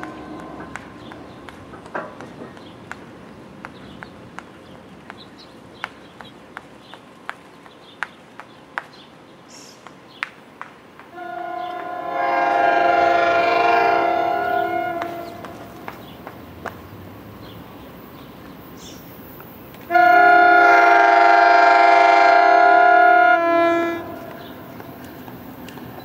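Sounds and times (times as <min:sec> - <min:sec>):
train horn chord: 0:00.0 - 0:01.2, 0:11.1 - 0:16.0, 0:19.9 - 0:24.7.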